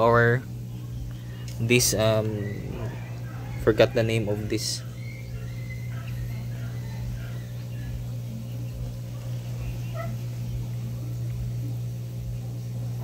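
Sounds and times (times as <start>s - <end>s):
aquarium air pump humming: 0.0s - 13.0s
faint high animal calls: 1.8s - 10.6s.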